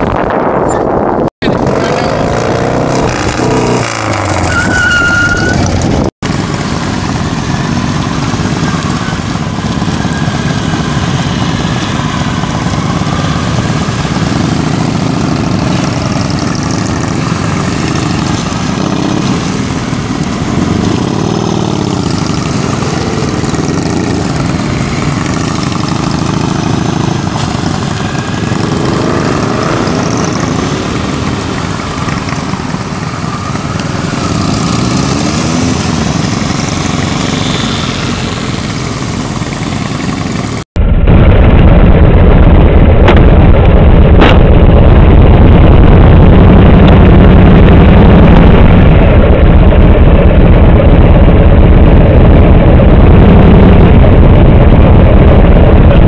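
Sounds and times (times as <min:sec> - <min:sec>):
motorcycle engines accelerating: 0:01.4 - 0:40.7.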